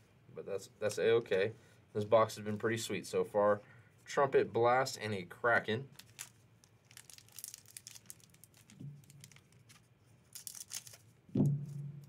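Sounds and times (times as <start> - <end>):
foil wrapper crinkling: 5.9 - 11.2.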